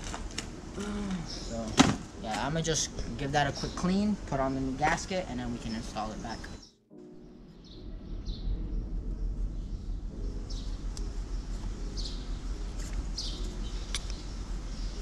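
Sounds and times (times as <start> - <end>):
steady low rumble: 0.0 - 15.0
small birds chirping: 0.8 - 6.8, 9.5 - 15.0
faint sharp clicks: 13.9 - 14.2.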